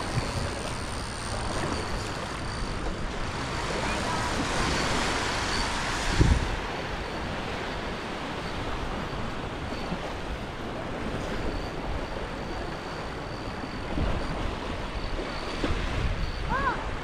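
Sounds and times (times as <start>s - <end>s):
surf: 0.0s - 11.6s
wind: 0.0s - 17.0s.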